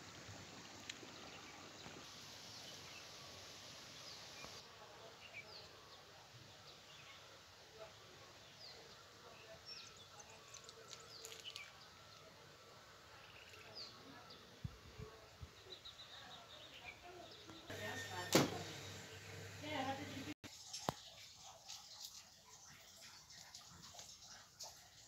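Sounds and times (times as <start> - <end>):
small birds chirping: 0.0 - 12.4, 13.0 - 18.3.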